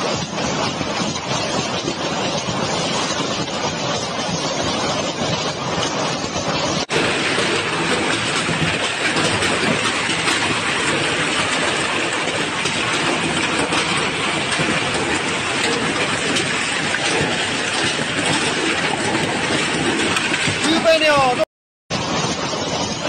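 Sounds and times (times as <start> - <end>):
hail pelting street and canopies: 0.0 - 23.0.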